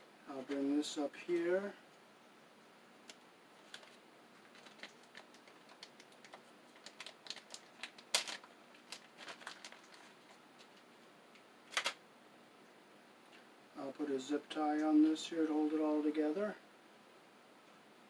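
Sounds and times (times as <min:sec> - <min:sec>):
hands handling wires and parts: 0:03.0 - 0:12.0.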